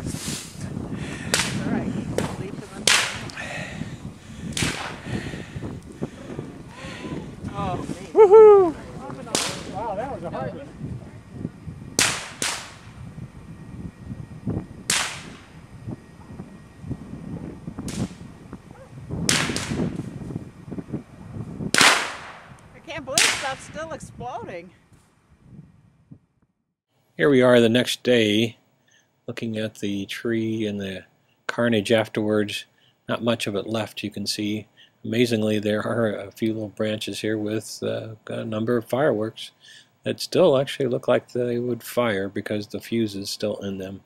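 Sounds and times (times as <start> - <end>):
fireworks cracking: 0.0 - 10.4, 12.0 - 13.0, 14.8 - 15.6, 19.2 - 20.3, 21.7 - 24.6
fire crackling: 0.0 - 25.4.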